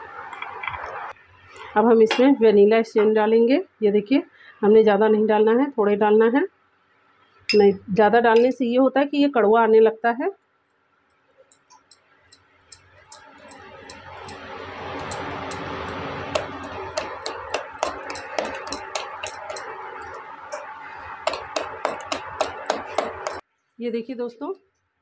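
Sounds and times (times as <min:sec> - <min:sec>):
whisk clicking on metal pot: 0:11.5 - 0:23.4
whisk swishing batter: 0:13.4 - 0:23.4.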